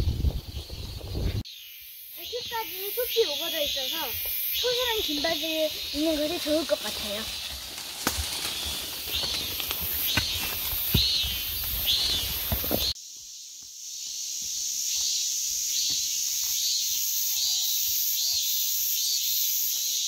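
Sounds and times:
insects buzzing: 0.0 - 20.0
leaves brushing: 2.5 - 13.0
close footsteps: 3.6 - 13.0.

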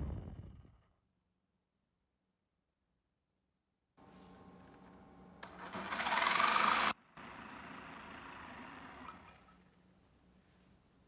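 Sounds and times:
electric jigsaw cutting wood: 5.4 - 9.5.

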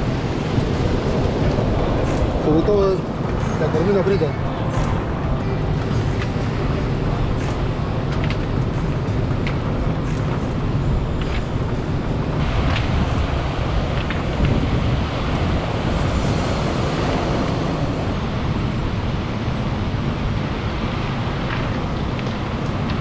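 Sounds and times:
surf on pebble beach: 0.0 - 9.0, 10.9 - 18.9
wind buffeting microphone: 0.0 - 23.0.

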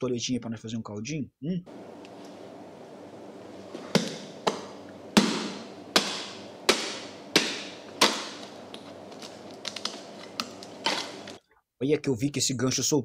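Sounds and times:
knife chopping fish head: 5.2 - 8.4.

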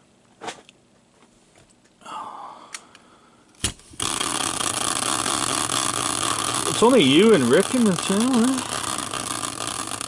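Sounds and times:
wheel whirring on axle: 4.0 - 10.0.

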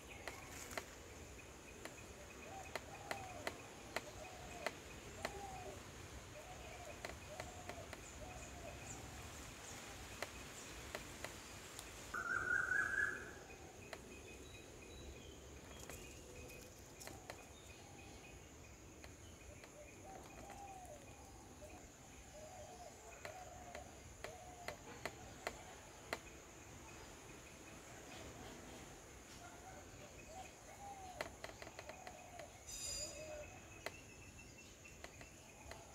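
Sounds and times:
steady high hiss: 0.0 - 29.4, 30.2 - 35.9
birds calling: 0.0 - 35.9
faint clicks: 0.1 - 1.0, 1.8 - 5.7, 6.4 - 8.8, 10.0 - 12.0, 15.7 - 17.8, 18.9 - 21.8, 22.7 - 26.3, 30.9 - 32.6, 34.9 - 35.9.

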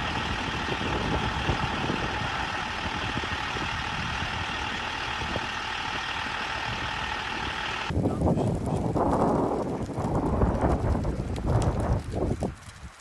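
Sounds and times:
fire truck engine idling: 0.0 - 7.9.

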